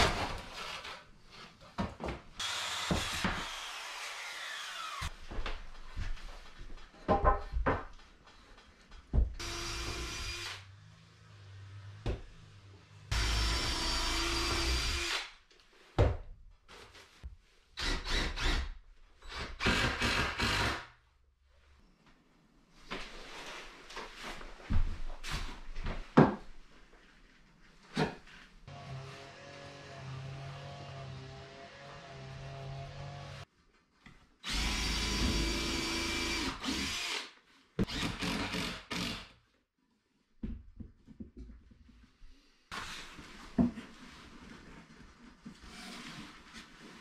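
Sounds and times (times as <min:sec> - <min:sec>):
cordless drill driving screws: 0:34.4 - 0:39.3.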